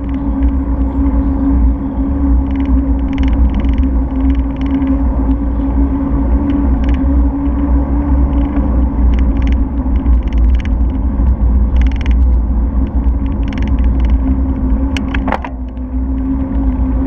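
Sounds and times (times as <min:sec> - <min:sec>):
sharp ticks: 0:00.0 - 0:00.7, 0:02.4 - 0:05.0, 0:06.4 - 0:07.6, 0:08.2 - 0:11.0, 0:11.7 - 0:16.3
steady low hum: 0:00.0 - 0:17.0
wind and road rumble: 0:00.0 - 0:17.0.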